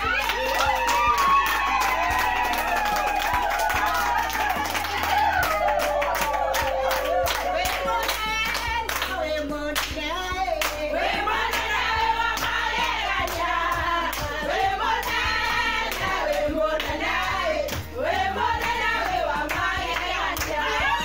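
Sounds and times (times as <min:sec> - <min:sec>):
hand-clapping in time: 0:00.0 - 0:18.0, 0:18.6 - 0:21.0
voices singing a praise song: 0:00.0 - 0:21.0.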